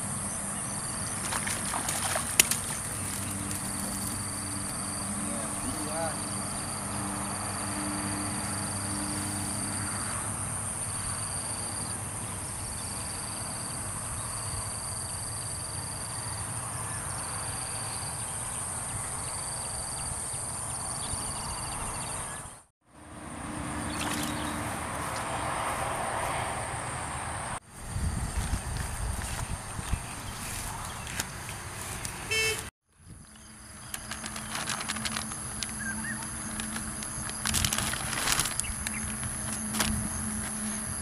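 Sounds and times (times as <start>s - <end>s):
high-pitched insect chorus: 0.0s - 22.5s, 33.0s - 41.0s
wind: 0.0s - 41.0s
rustling: 33.8s - 40.6s.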